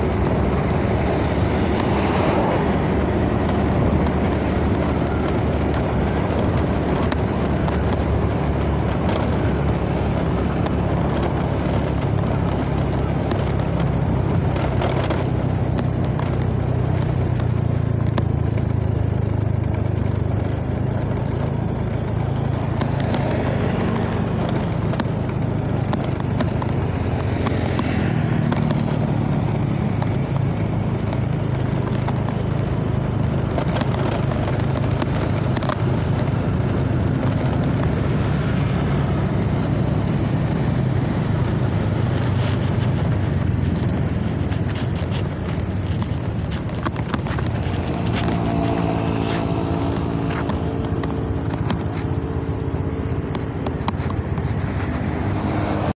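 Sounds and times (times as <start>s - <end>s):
vehicle engine cruising: 0.0s - 56.0s
wind on microphone: 0.0s - 56.0s.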